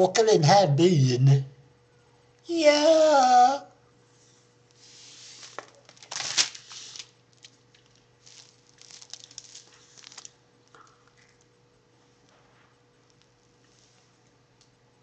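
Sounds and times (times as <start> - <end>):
paper rustling and crinkling: 4.9 - 10.4.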